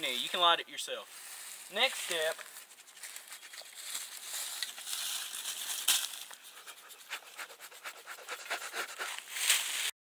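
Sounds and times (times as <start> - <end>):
scratching in dry leaves: 1.0 - 9.9
sharp leaf crackle: 1.2 - 6.4, 9.0 - 9.9.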